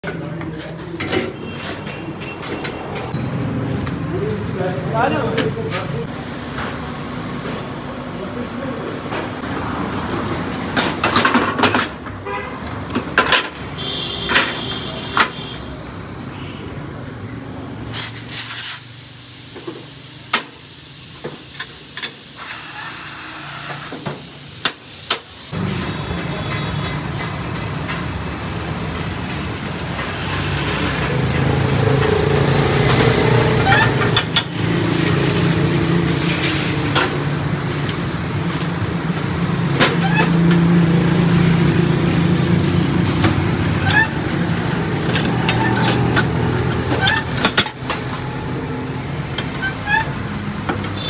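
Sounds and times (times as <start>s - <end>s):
street traffic: 0.0s - 51.0s
motorcycle and car engines running: 30.4s - 50.0s.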